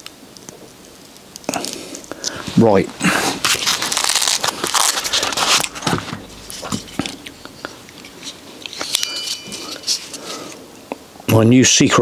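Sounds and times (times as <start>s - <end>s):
velcro and plastic crackling: 2.4s - 7.4s.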